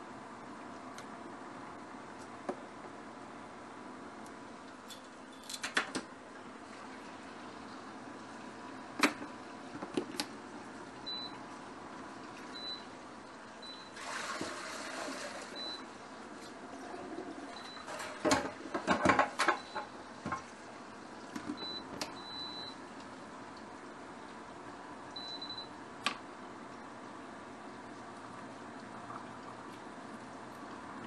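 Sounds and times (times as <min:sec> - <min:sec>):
kitchen knocks and clatter: 0:17.9 - 0:20.4.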